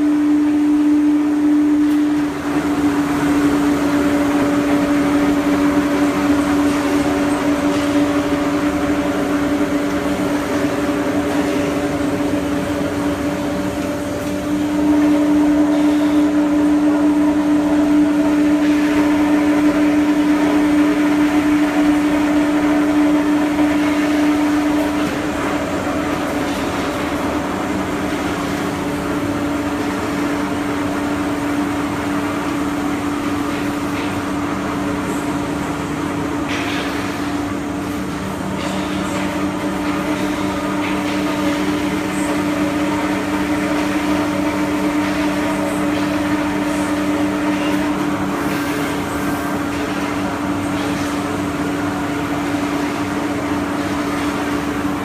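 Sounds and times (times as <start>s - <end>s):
machine motor hum: 0.0s - 55.0s.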